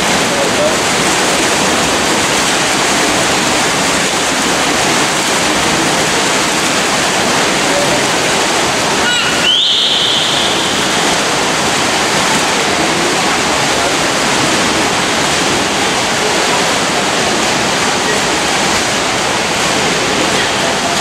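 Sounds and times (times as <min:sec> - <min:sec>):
swimmers splashing: 0:00.0 - 0:21.0
high whistling tone: 0:09.1 - 0:10.8.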